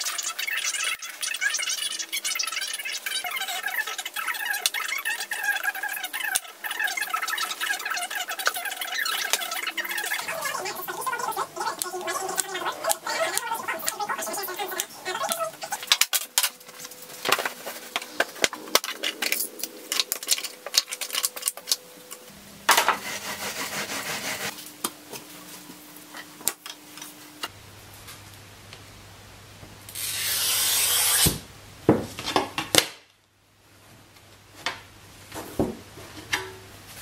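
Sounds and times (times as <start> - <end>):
glass cutter scoring glass: 30.0 - 31.4.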